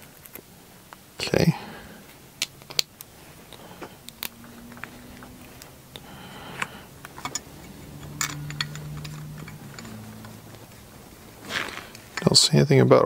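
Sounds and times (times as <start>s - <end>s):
faint low hum: 0.0s - 13.0s
small metal parts clicking: 7.0s - 10.3s.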